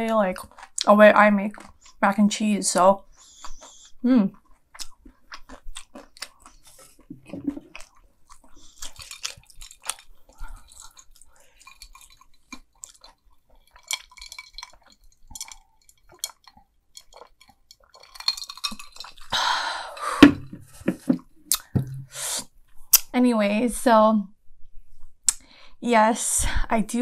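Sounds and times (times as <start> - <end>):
crunchy chewing: 0.3 - 2.0, 3.0 - 19.7.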